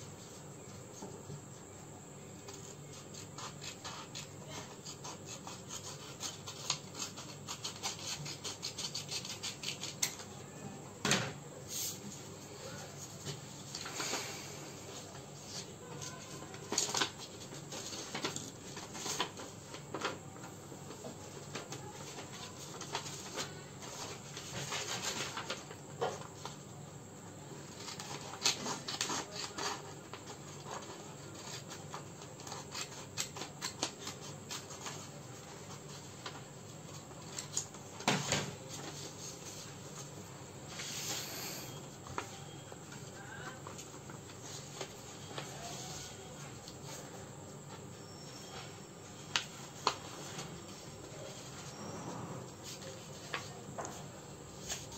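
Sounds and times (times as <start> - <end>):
scissors cutting paper: 2.6 - 10.2, 27.7 - 35.0
paper being folded and creased: 14.9 - 26.6, 27.7 - 38.0, 49.1 - 51.9.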